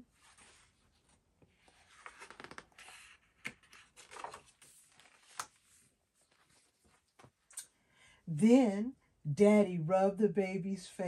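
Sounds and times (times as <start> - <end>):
pages turning: 0.2 - 7.4.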